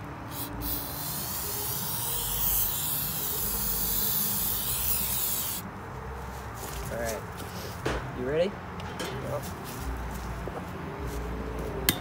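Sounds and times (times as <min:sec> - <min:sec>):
aerosol can spraying: 0:00.3 - 0:05.6.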